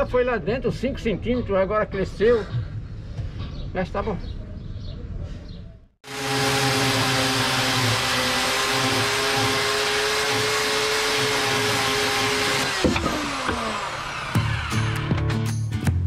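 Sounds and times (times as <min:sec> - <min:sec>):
chainsaw motor running: 0:06.0 - 0:15.1.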